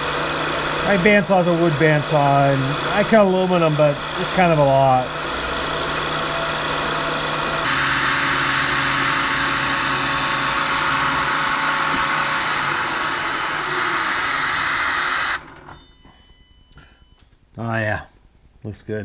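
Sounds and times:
milling machine cutting metal: 0.0 - 15.7.

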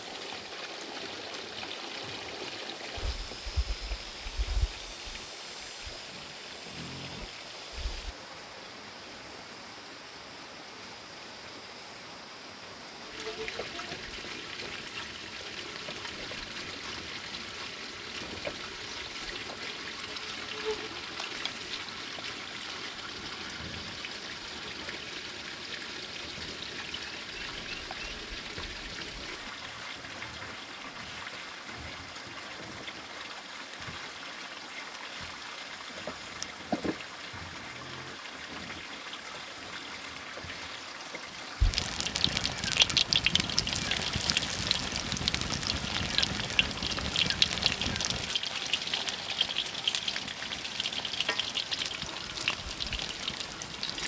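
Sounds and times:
trickle of running water: 0.0 - 9.0, 12.9 - 54.0
dense crackling spatter: 41.6 - 54.0.

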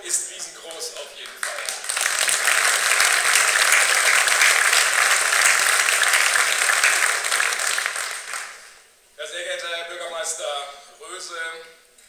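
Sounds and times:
audience applauding: 0.6 - 8.8.

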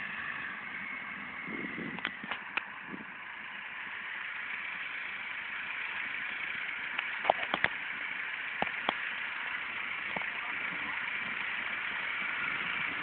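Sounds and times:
tractor engines running: 0.0 - 13.0
sharp clicks: 6.9 - 7.8.

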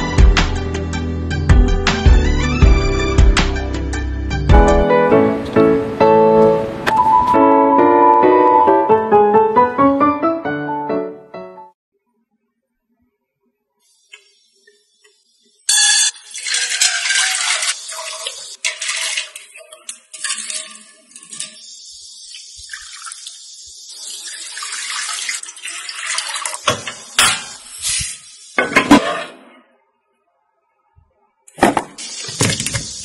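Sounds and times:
water pouring into pan: 15.7 - 27.8.

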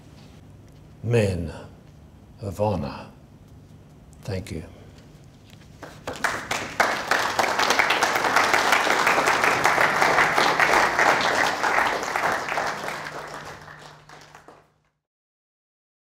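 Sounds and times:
audience applauding: 5.8 - 14.8.

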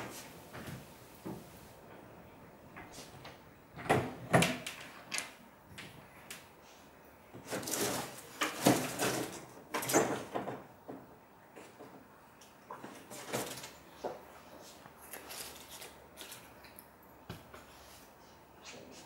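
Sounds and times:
things clattering and rustling: 7.3 - 12.1, 12.7 - 16.6.

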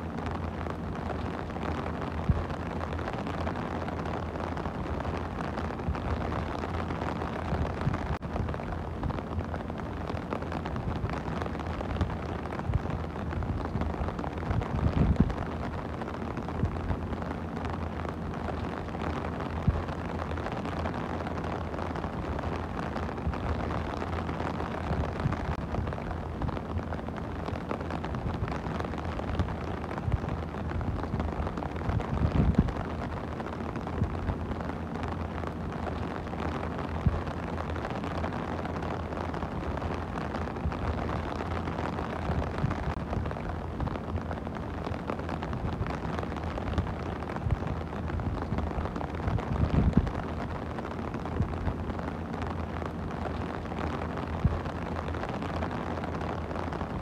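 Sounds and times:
rain on plastic umbrella: 0.0 - 57.0.

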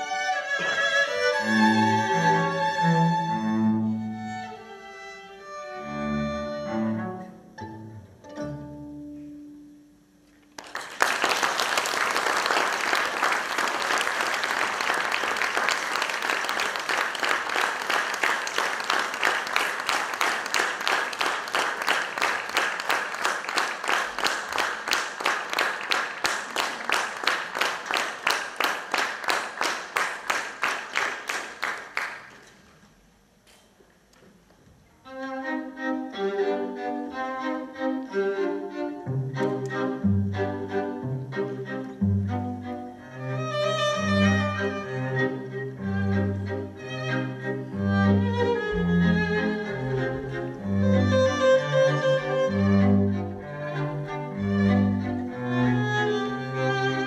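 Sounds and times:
string quartet playing: 0.0 - 9.5, 35.1 - 57.0
audience clapping: 10.5 - 32.8.

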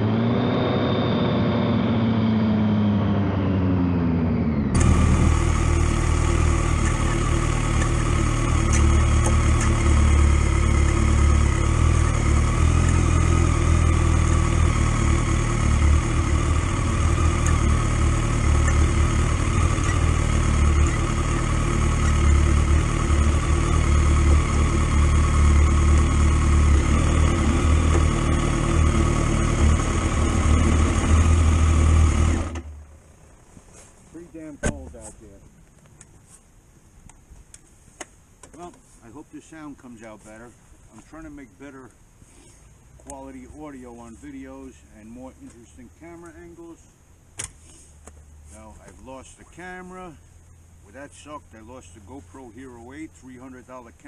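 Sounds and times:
motorcycle engine: 0.0 - 35.6.

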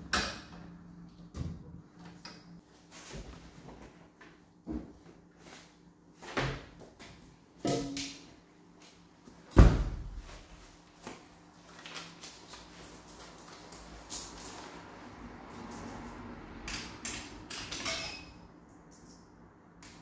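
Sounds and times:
dryer door slamming shut: 9.6 - 10.2.

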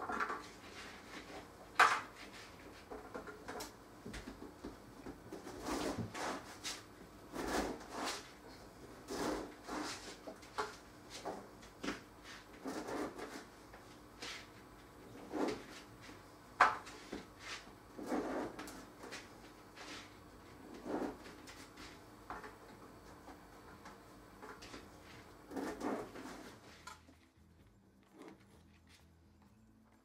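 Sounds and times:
bread knife sawing through bread: 7.3 - 8.3, 9.1 - 10.2.

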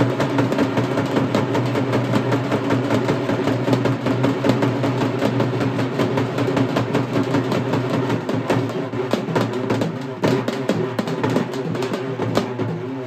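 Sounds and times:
fast drumming: 0.0 - 13.0.

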